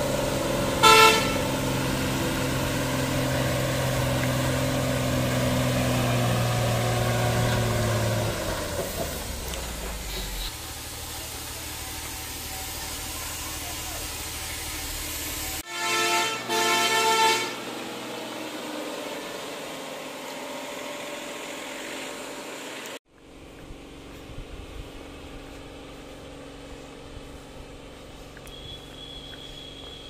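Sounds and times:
lorry engine running: 0:00.0 - 0:30.0
lorry horn blasts: 0:00.6 - 0:02.2, 0:15.6 - 0:17.8.

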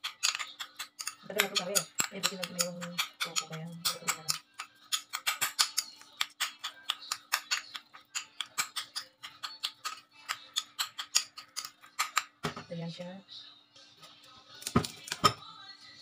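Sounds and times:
metal spoon scraping ceramic bowl: 0:00.0 - 0:12.3.

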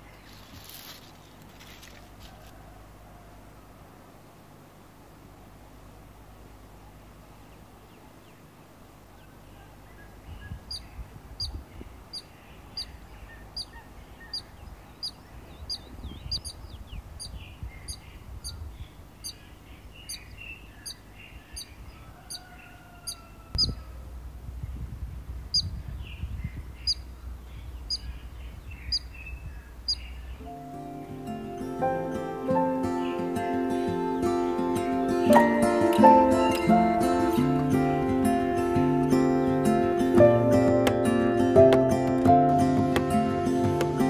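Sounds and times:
faint birdsong: 0:00.0 - 0:44.0
low rumble: 0:23.5 - 0:30.5.

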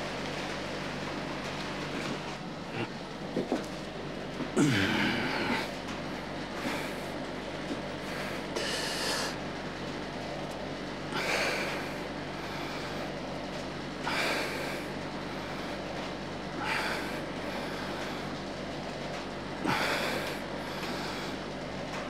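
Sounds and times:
man breathing hard: 0:04.6 - 0:05.7, 0:08.0 - 0:09.4, 0:11.1 - 0:13.1, 0:14.0 - 0:15.8, 0:16.6 - 0:18.3, 0:19.6 - 0:21.4.

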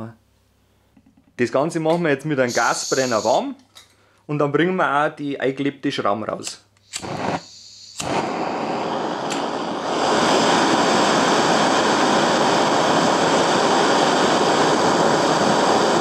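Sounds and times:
gas torch flame hissing: 0:02.4 - 0:03.6, 0:06.4 - 0:16.0.

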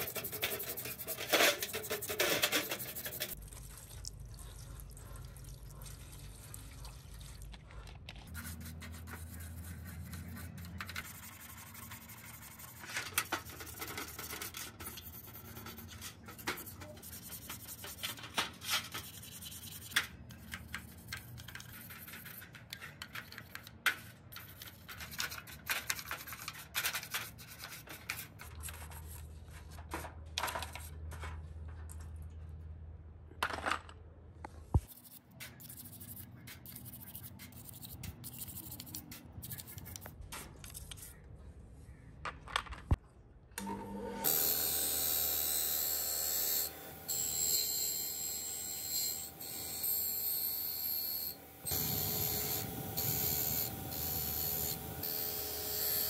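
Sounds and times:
toothbrush scrubbing plastic: 0:00.0 - 0:23.6, 0:34.9 - 0:40.2.

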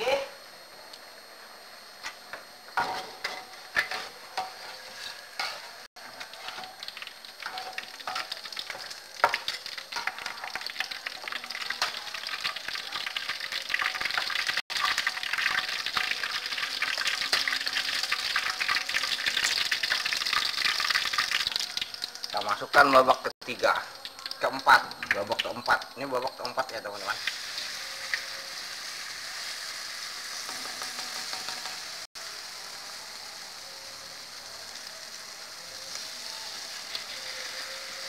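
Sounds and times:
metal ladle scraping a wok: 0:02.8 - 0:06.7
fritters sizzling in hot oil: 0:02.8 - 0:38.0.

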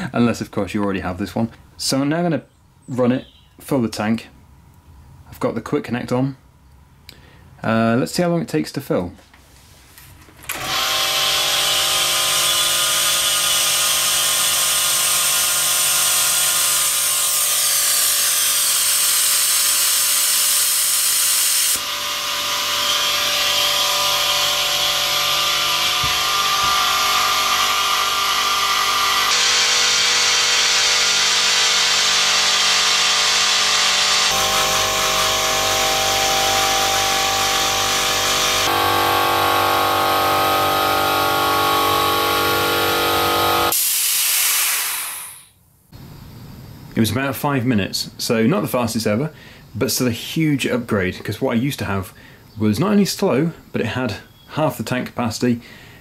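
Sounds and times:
air compressor running: 0:10.4 - 0:45.5.

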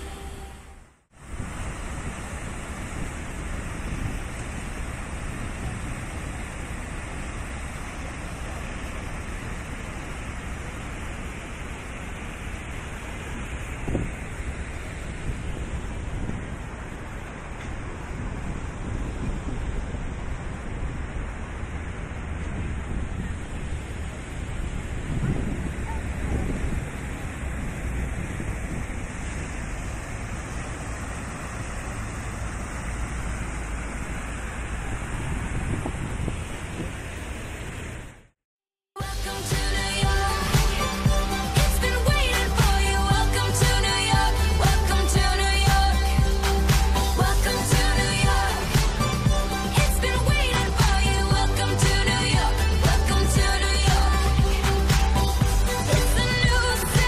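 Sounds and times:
low city rumble: 0:00.0 - 0:38.4, 0:39.0 - 0:57.0
fountain splashing: 0:01.1 - 0:38.3, 0:39.0 - 0:57.0
fountain water spilling over ledge: 0:01.3 - 0:17.1.

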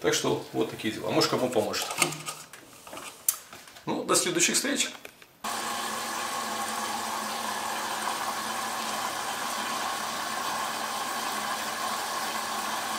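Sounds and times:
washing machine whirring hum: 0:05.4 - 0:12.9.

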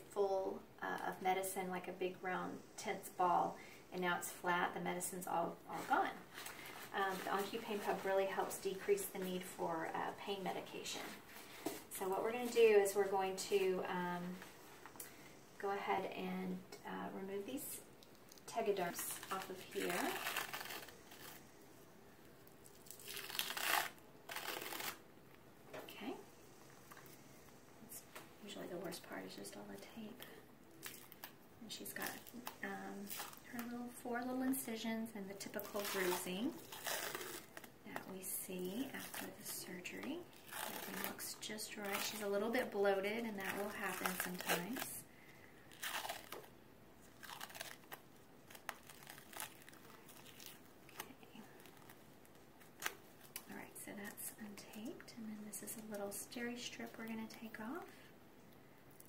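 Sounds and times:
adhesive film peeled off skin: 0:18.0 - 0:21.6, 0:22.4 - 0:25.0, 0:30.7 - 0:33.8, 0:35.4 - 0:38.1, 0:38.7 - 0:45.0, 0:45.7 - 0:54.2.

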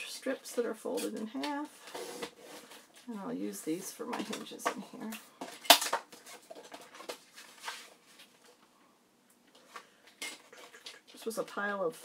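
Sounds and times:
paper rustling and sliding: 0:01.8 - 0:03.1, 0:06.1 - 0:08.5.

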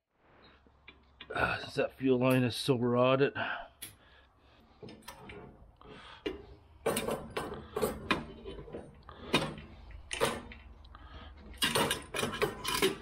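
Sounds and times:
metallic clicks and knocks: 0:06.2 - 0:13.0
linkages rattling: 0:06.8 - 0:13.0.

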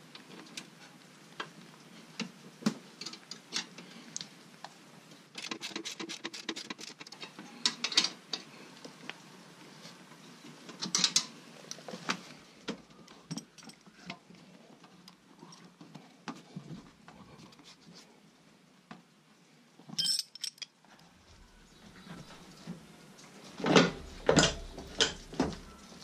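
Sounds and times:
metal clicks and clinks: 0:19.9 - 0:20.8.

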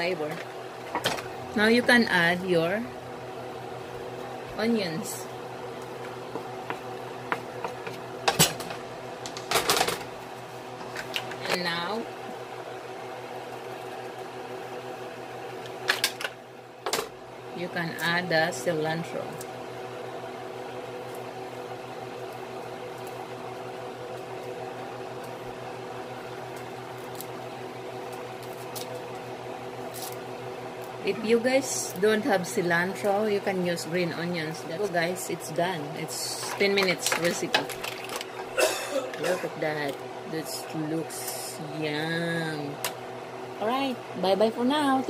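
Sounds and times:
steady hum: 0:00.0 - 0:45.0
mussel shells clattering in pan: 0:37.0 - 0:38.4.

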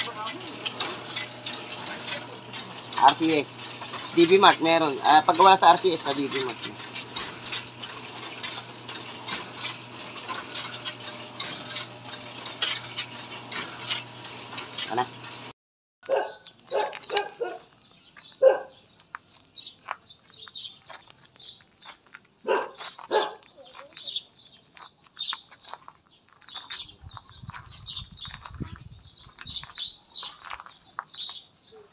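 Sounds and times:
dog barking: 0:16.0 - 0:17.6, 0:18.4 - 0:18.8, 0:22.4 - 0:23.4
small birds chirping: 0:16.3 - 0:31.9.

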